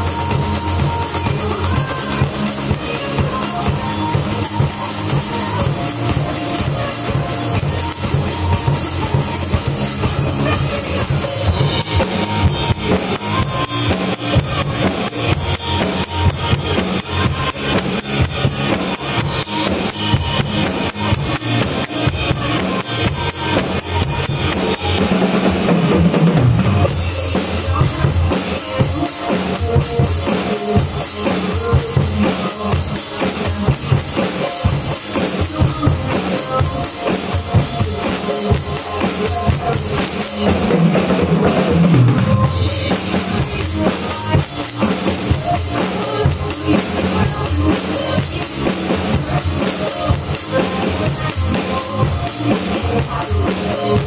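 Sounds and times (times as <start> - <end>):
acoustic drum kit beat: 0.0 - 54.0
pop backing track: 0.0 - 54.0.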